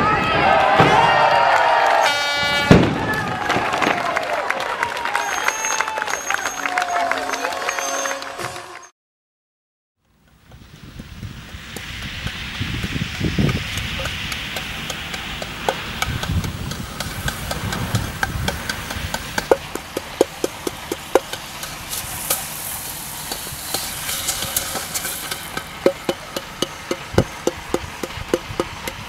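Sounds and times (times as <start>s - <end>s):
wind noise on microphone: 10.4s - 19.8s, 21.8s - 29.0s.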